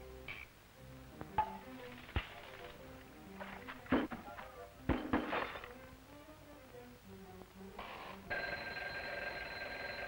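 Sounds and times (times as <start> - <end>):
cartoon alarm clock bell ringing: 8.3 - 10.0.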